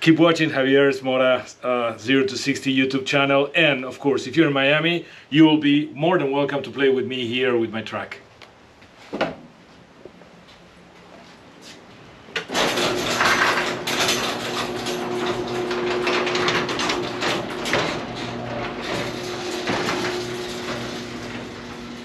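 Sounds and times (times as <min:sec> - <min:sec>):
garage door motor hum: 0:12.1 - 0:22.0
door panels rattling and clicking: 0:12.4 - 0:22.0.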